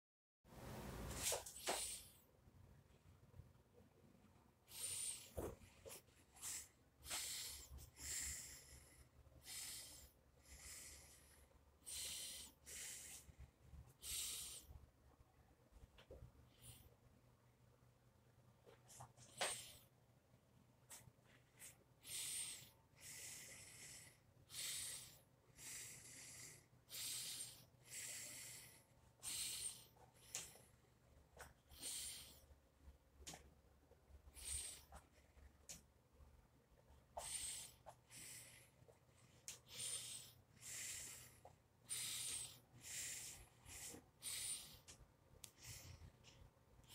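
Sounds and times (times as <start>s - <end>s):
faint low room hum: 0.5s - 46.9s
person breathing: 1.2s - 2.3s, 4.6s - 14.8s, 16.4s - 17.0s, 20.9s - 32.6s, 34.2s - 35.6s, 37.1s - 46.9s.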